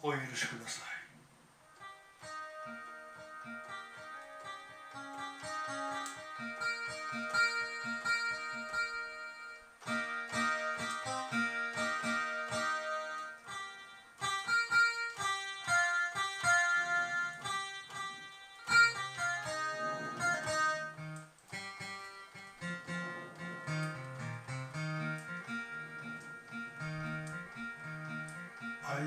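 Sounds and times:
plucked guitar melody: 0:01.6 - 0:29.0
bass notes: 0:18.7 - 0:29.0.

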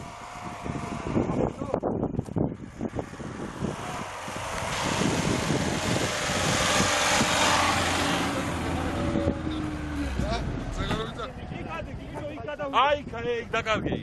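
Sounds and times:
car engine running hard: 0:00.0 - 0:12.3
rushing noise through snow: 0:03.0 - 0:08.4.

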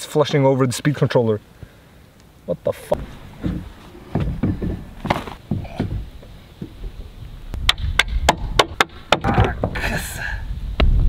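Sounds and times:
wind buffeting microphone: 0:02.9 - 0:11.0
wetsuit rustling and handling: 0:03.0 - 0:05.5.

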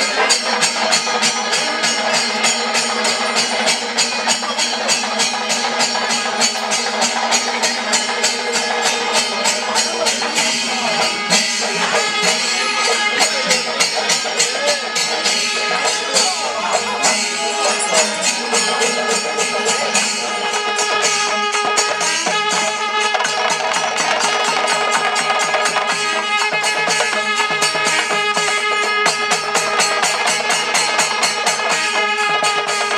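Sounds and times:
steady held tones: 0:00.0 - 0:22.0
metallic jingling strokes: 0:00.0 - 0:22.1.

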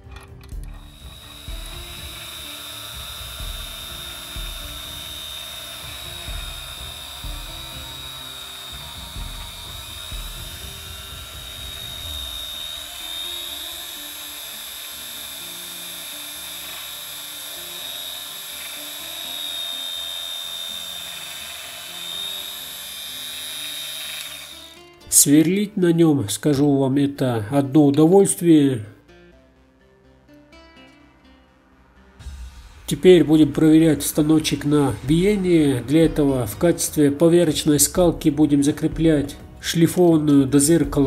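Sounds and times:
bench drill motor whine: 0:00.0 - 0:25.3
background music: 0:00.0 - 0:41.0.

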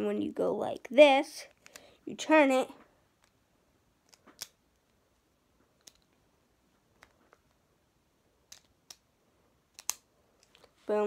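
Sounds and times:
faint plastic clicks: 0:01.5 - 0:02.0, 0:05.6 - 0:06.2, 0:09.7 - 0:10.9.

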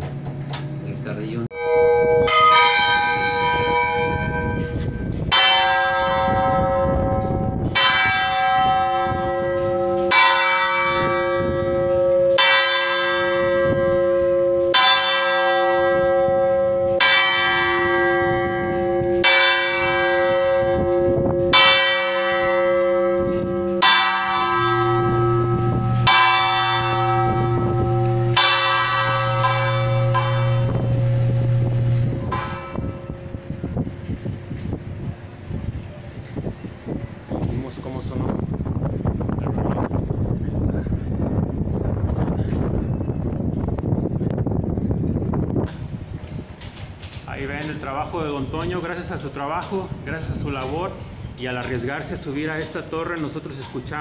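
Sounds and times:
church bell strokes: 0:01.5 - 0:35.2.

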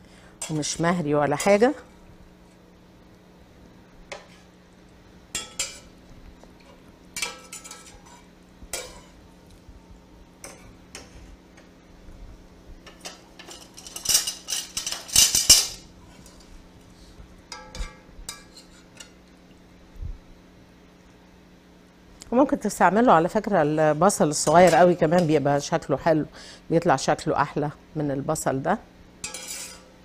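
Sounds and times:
metal spoon clinking on pan: 0:05.3 - 0:05.9, 0:07.2 - 0:09.1, 0:17.5 - 0:19.2, 0:29.2 - 0:29.9.

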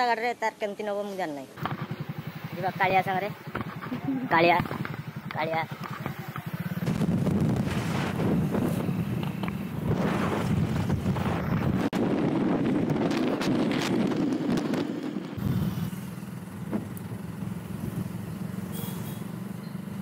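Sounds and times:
motorcycle engine running: 0:01.6 - 0:20.0
wind buffeting microphone: 0:03.4 - 0:15.9.

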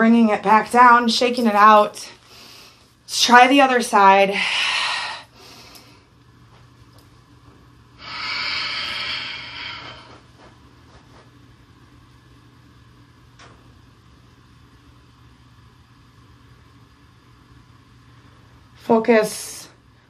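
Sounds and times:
low steady hum: 0:00.0 - 0:20.0
person breathing out: 0:08.0 - 0:10.2.

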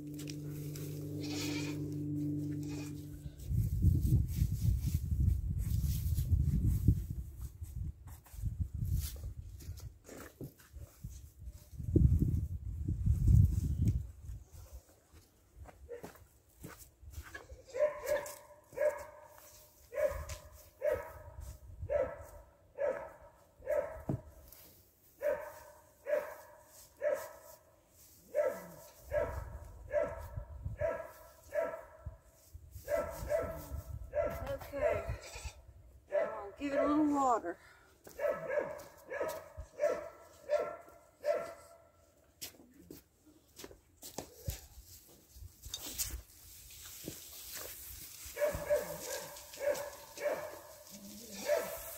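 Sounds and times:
dog barking: 0:17.7 - 0:24.1, 0:25.2 - 0:27.4, 0:28.3 - 0:32.1, 0:32.8 - 0:35.2, 0:36.1 - 0:37.0, 0:38.2 - 0:41.9, 0:48.4 - 0:50.8, 0:51.4 - 0:51.9.

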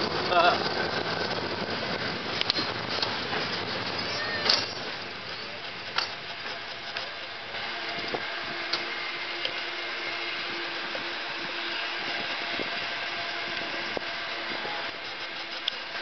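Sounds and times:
cable car running hum: 0:00.0 - 0:16.0.

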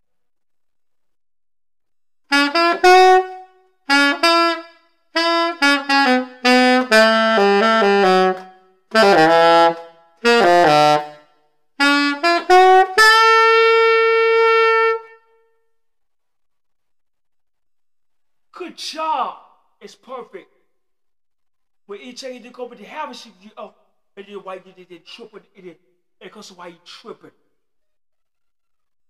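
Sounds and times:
alto saxophone playing: 0:02.3 - 0:15.4.

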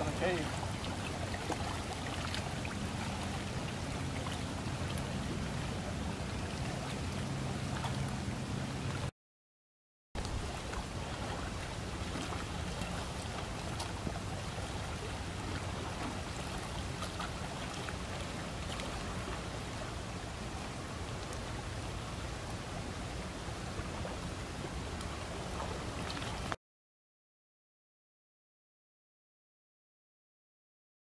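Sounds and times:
faint ticks of water: 0:00.0 - 0:09.1, 0:10.2 - 0:26.6
small waves lapping on rocks: 0:00.0 - 0:09.1, 0:10.2 - 0:26.6
wind rumbling on microphone: 0:00.0 - 0:09.1.

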